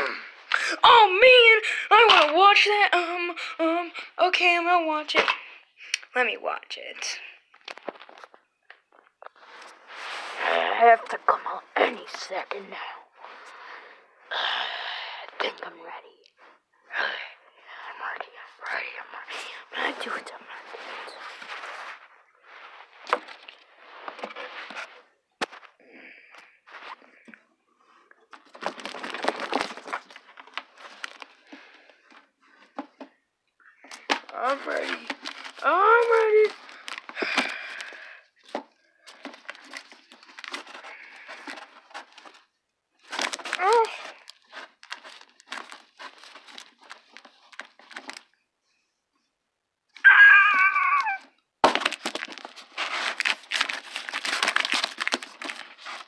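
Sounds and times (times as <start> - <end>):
fabric rubbing on microphone: 9.3 - 11.0, 19.8 - 25.0
cardboard box scraping and rustling: 52.1 - 56.0.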